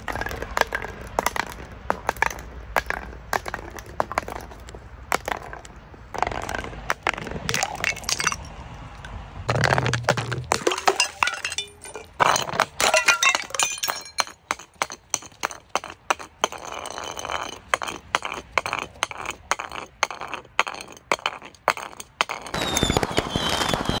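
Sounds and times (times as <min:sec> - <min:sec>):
jars rolling on concrete: 0:00.0 - 0:22.9
glass jars clinking on steps: 0:06.2 - 0:08.5, 0:09.5 - 0:22.6.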